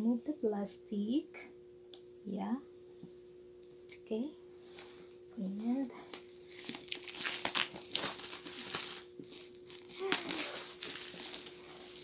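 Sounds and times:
plastic shrink-wrap crinkling: 0:06.0 - 0:12.0.

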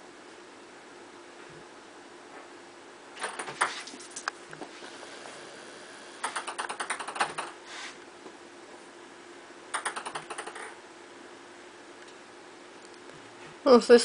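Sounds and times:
ping pong ball bouncing: 0:06.2 - 0:07.5, 0:09.7 - 0:10.8.

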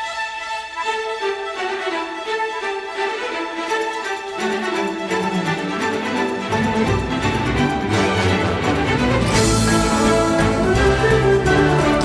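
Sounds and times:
violin melody: 0:00.0 - 0:12.0
lower string notes: 0:01.8 - 0:12.0.

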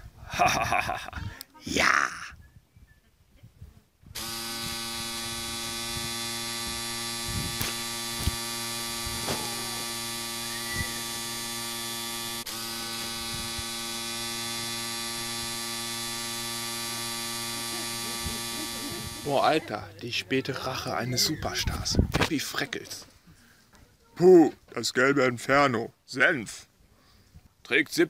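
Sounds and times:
electric buzz: 0:04.1 - 0:19.8
low hum: 0:04.2 - 0:20.4.

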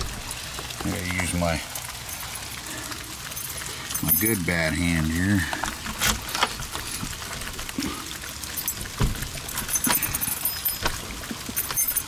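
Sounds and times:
key ring jangling: 0:08.5 - 0:12.0.

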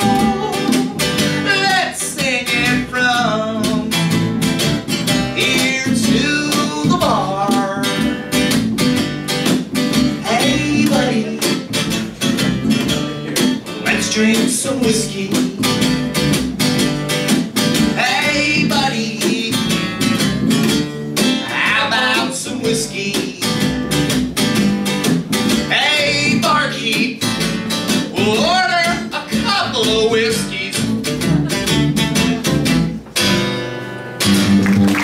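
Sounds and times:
man singing: 0:00.0 - 0:04.2, 0:05.3 - 0:08.2, 0:10.2 - 0:11.9, 0:13.1 - 0:16.0, 0:17.9 - 0:19.9, 0:21.4 - 0:23.8, 0:25.6 - 0:27.4, 0:28.0 - 0:32.5
plucked upright bass: 0:00.0 - 0:35.0
strummed acoustic guitar: 0:00.0 - 0:35.0.

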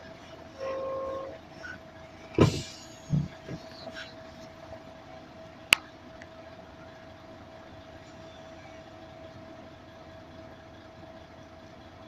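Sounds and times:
dull thump: 0:02.3 - 0:03.8.

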